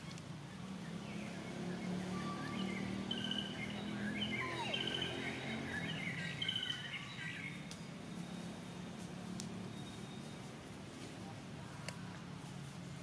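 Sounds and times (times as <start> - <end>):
birds chirping: 0.5 - 11.0.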